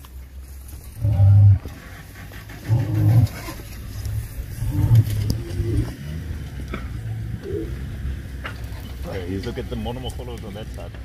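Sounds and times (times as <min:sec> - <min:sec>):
lion roaring: 0:01.0 - 0:03.6, 0:04.5 - 0:06.2.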